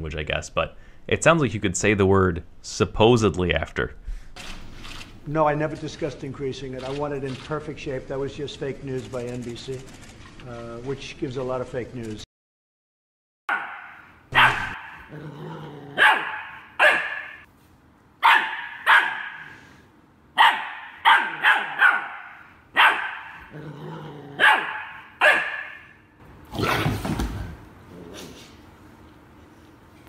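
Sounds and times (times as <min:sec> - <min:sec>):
small dog barking: 0:13.5 - 0:15.2, 0:15.9 - 0:17.4, 0:18.2 - 0:19.5, 0:20.4 - 0:23.5, 0:24.4 - 0:25.9.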